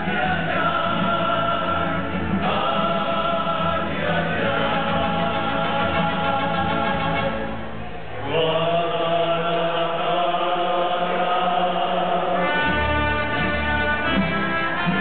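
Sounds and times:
men singing together: 0.0 - 7.4, 8.3 - 14.4
violins and guitars: 0.0 - 8.5, 11.1 - 15.0
bass: 0.0 - 8.8, 12.4 - 15.0.

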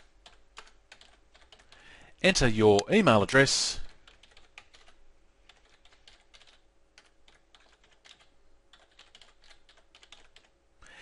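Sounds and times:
typing on keyboard: 0.0 - 1.8, 3.9 - 10.5.

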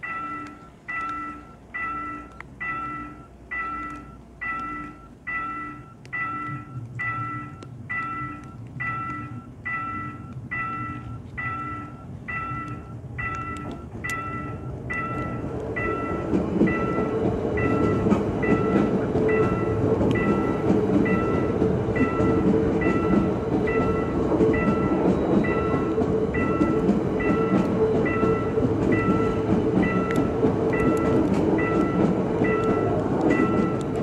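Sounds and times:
level crossing bell chiming: 0.0 - 17.0
train wheels rumbling on rails: 0.0 - 34.0.

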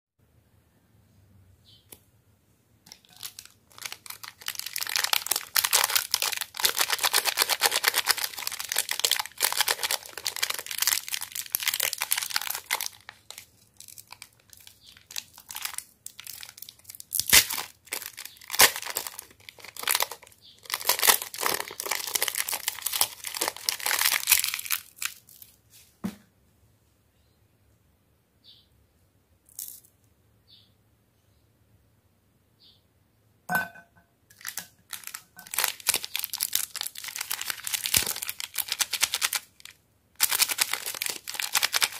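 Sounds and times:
plastic wrapper crinkling and tearing: 2.9 - 25.6, 34.3 - 41.9.

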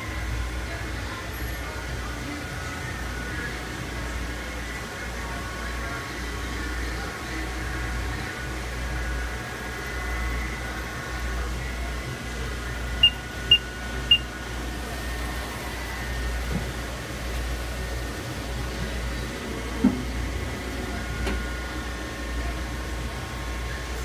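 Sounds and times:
shop machinery humming: 0.0 - 24.0
short high beeps: 13.0 - 14.3.

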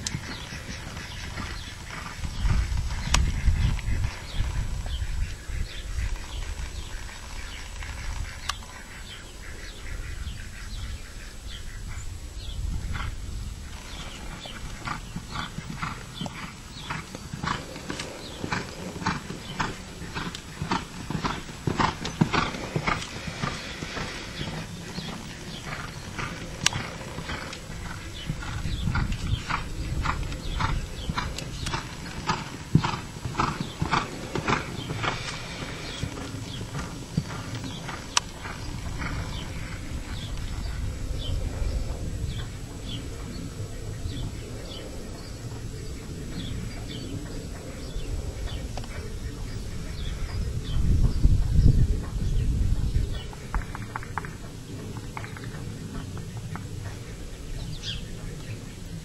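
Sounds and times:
hoofbeats on dirt: 13.8 - 40.2.

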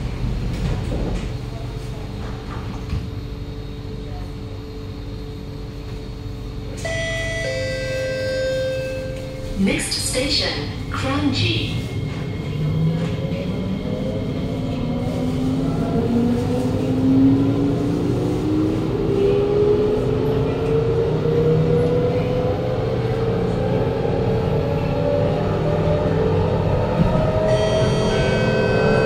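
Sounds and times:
running train rumble: 0.0 - 29.0.

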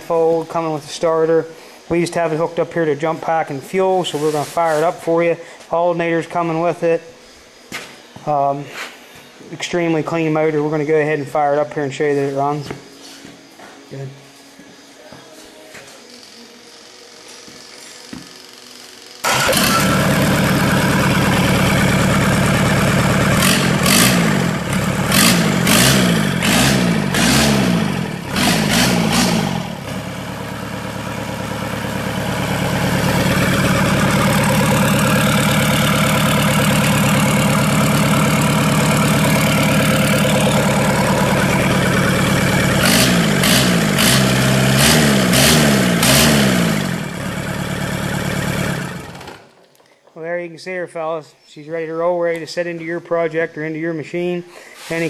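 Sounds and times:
diesel engine revving and idling: 19.2 - 49.4.

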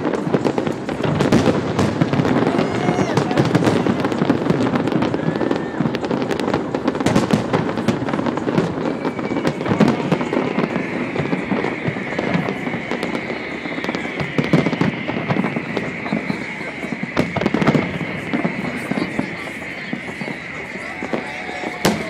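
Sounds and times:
fireworks bangs and crackling: 0.0 - 22.0
high whistle: 8.6 - 22.0.

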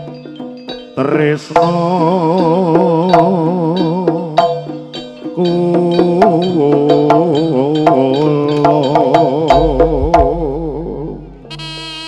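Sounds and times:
drum and metal strikes: 0.0 - 11.8
gamelan melody: 0.0 - 12.0
deep low tone: 9.5 - 11.9.

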